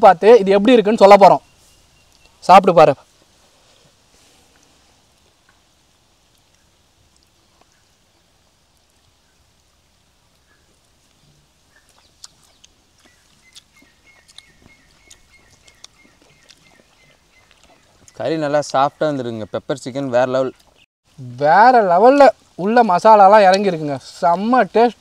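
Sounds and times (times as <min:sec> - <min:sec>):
eating clicks and smacks: 0:11.8 - 0:18.2.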